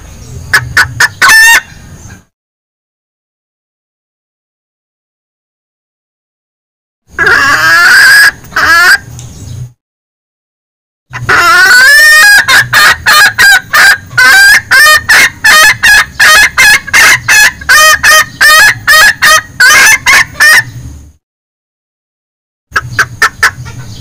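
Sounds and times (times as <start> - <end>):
junglefowl clucking calls: 0.5 - 2.3, 7.2 - 9.1, 11.1 - 20.8, 22.7 - 24.0.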